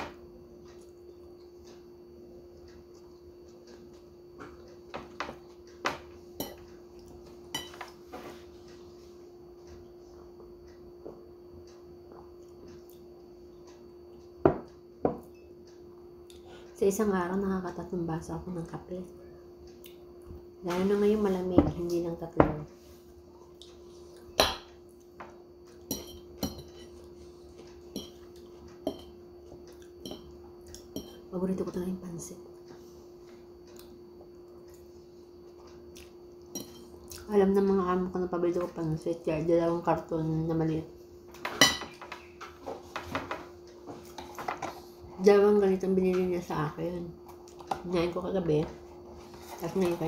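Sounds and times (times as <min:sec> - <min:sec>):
steady low hum: 0:00.0 - 0:50.0
fork clinking on tableware: 0:41.5 - 0:42.3.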